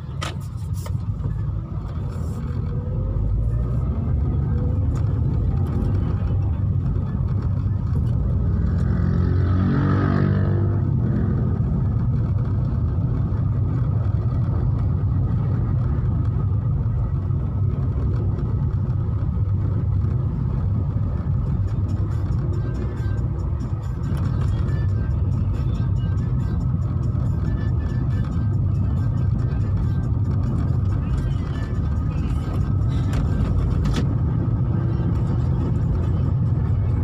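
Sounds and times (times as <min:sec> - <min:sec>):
car engine and road rumble: 0:00.0 - 0:37.0.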